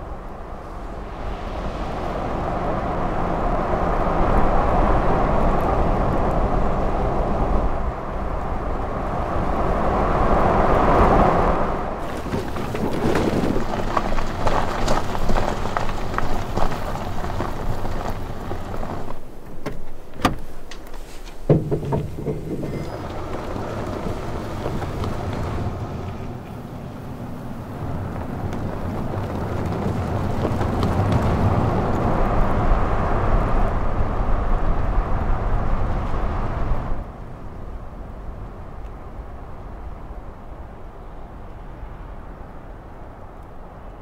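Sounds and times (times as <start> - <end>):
tyres rolling over gravel: 11.9 - 33.6
knocks and rattles: 12.0 - 25.6.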